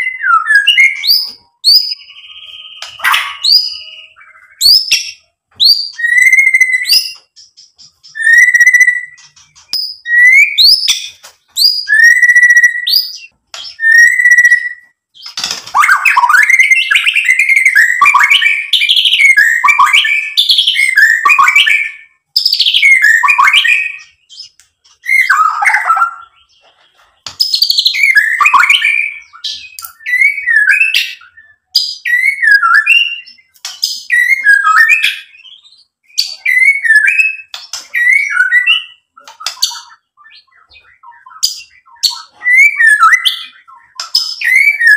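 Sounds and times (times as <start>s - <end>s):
bird singing whistles: 0.0s - 26.8s, 27.4s - 44.9s.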